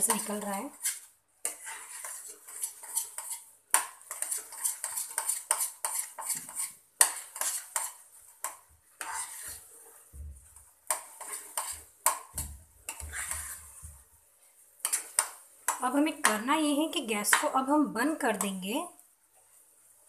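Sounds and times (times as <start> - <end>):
metal spatula scraping a pan: 0.0 - 14.0, 14.8 - 16.4.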